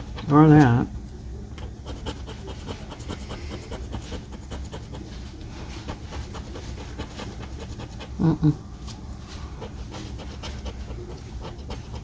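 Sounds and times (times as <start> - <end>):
lottery ticket being scratched: 1.6 - 8.2.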